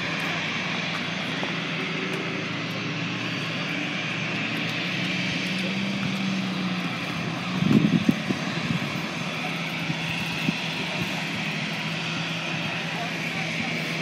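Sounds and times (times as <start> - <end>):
jet engines humming and whining: 0.0 - 14.0.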